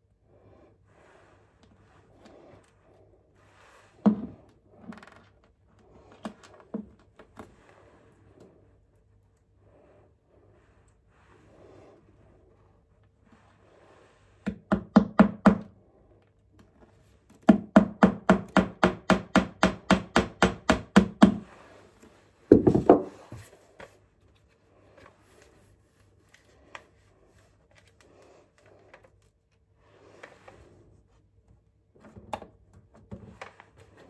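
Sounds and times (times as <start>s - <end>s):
hammer tapping a nail: 14.5s - 15.7s, 17.5s - 21.4s.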